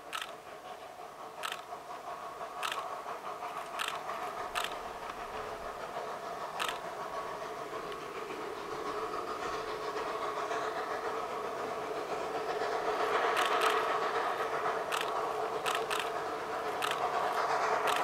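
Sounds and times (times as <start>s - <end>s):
train creaking squeal: 0.0s - 18.0s
sharp clicks: 0.1s - 0.4s, 1.4s - 1.7s, 2.6s - 2.9s, 3.6s - 5.4s, 6.5s - 6.9s, 13.2s - 14.0s, 14.8s - 18.0s.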